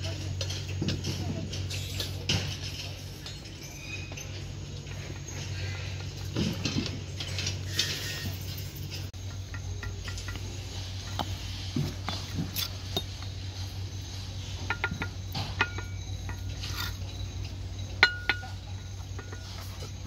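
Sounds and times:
trowel tapping bricks: 9.2s - 13.5s, 14.4s - 20.0s
trowel scraping mortar: 16.4s - 17.1s.

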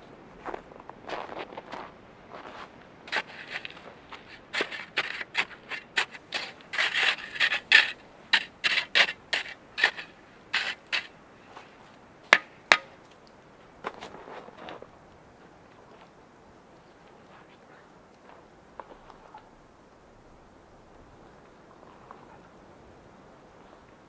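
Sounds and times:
metal shovel scraping snow: 3.1s - 11.1s
sharp knocks: 12.3s - 13.0s.

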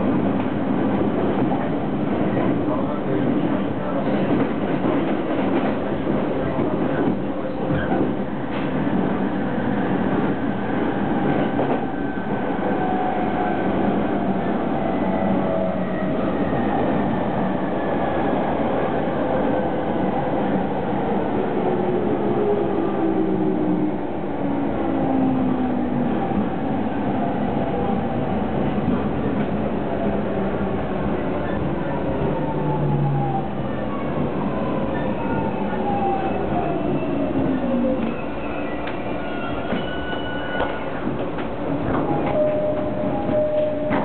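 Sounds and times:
train wheel and rail rumble: 0.0s - 44.0s
train clicks: 40.5s - 44.0s.

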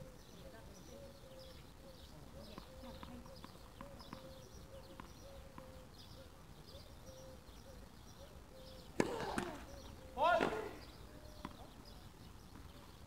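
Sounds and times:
faint birds chirping: 0.0s - 13.0s
tennis ball impact: 9.0s - 11.7s.

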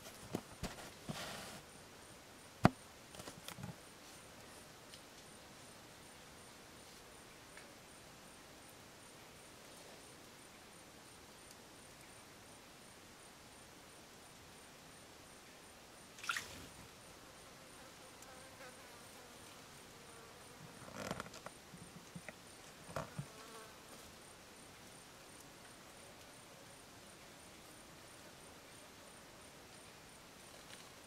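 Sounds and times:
faint high insect ticking: 1.7s - 31.0s.

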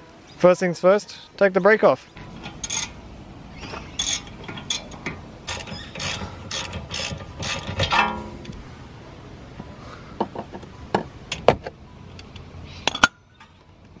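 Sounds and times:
ratchet wrench clicking: 2.4s - 3.0s, 4.0s - 8.0s.

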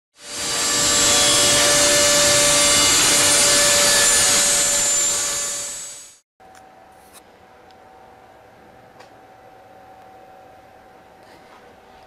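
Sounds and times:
power tool cutting: 0.2s - 6.2s.

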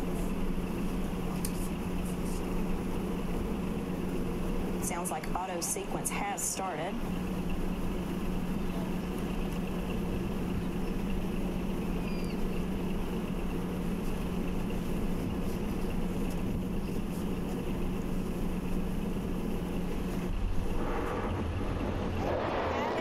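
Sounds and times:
constant low hum: 0.0s - 23.0s
steady rushing noise: 12.6s - 23.0s.

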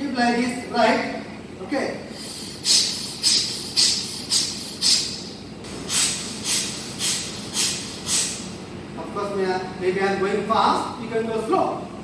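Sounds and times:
man breathing forcefully through nose: 2.1s - 8.5s.

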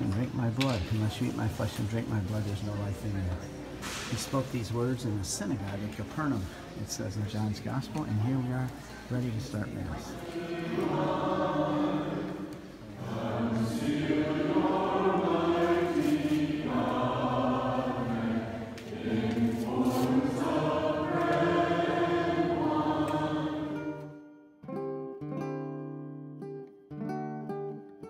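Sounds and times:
congregation singing a hymn: 9.2s - 24.2s.

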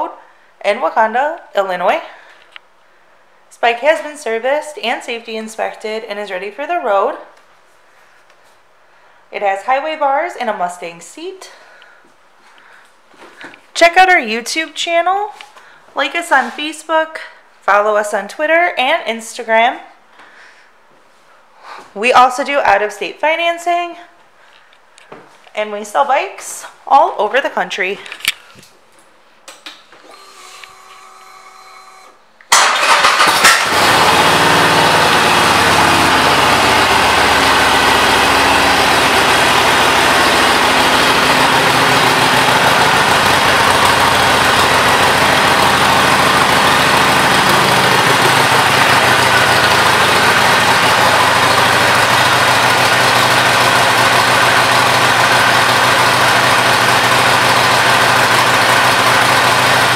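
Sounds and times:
motorcycle engine starting and idling: 30.1s - 59.9s.

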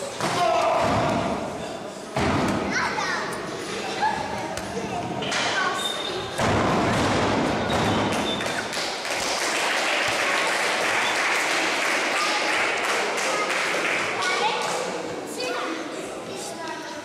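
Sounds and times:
crowd cheering and clapping: 8.4s - 14.3s.

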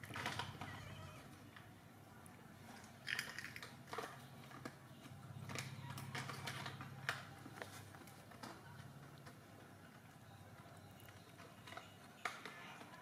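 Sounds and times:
animals wrestling on concrete: 3.7s - 13.0s.

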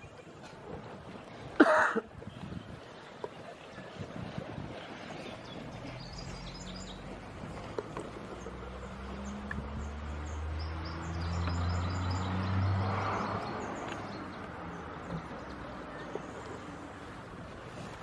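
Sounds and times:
small birds chirping: 5.2s - 16.9s
vehicle engine hum: 5.6s - 18.0s.

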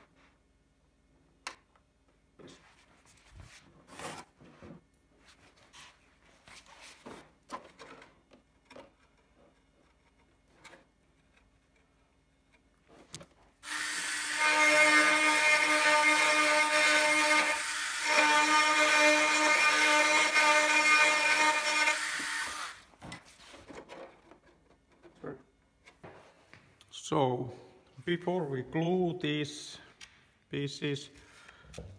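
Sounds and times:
cordless drill whining: 13.6s - 22.9s.

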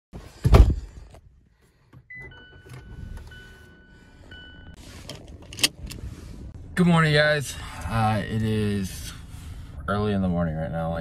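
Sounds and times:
low engine rumble: 2.4s - 11.0s.

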